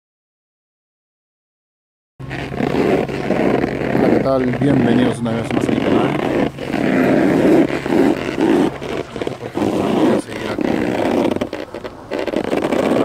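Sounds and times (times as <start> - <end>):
wind buffeting microphone: 2.2 - 13.0.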